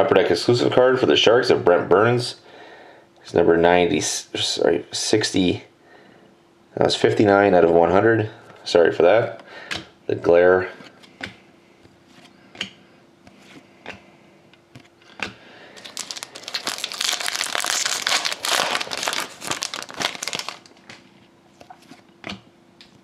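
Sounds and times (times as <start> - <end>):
plastic wrapper crinkling: 15.8 - 21.1.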